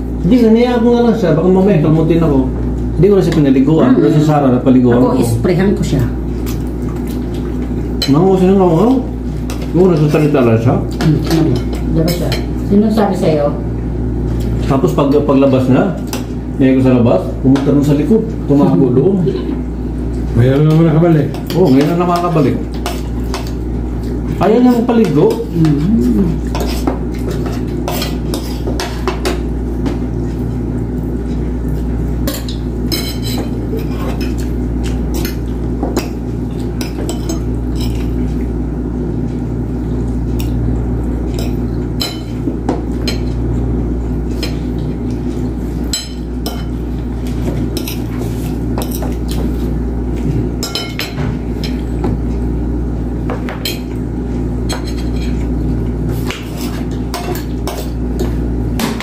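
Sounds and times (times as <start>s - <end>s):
steady low hum: 0.0s - 59.0s
cutlery clinking on plates: 32.2s - 34.5s.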